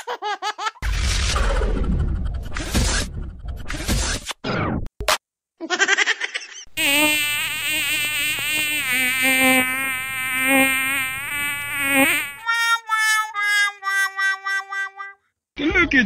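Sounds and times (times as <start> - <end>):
buzzing insect-like sound effect: 6.8 - 12.5.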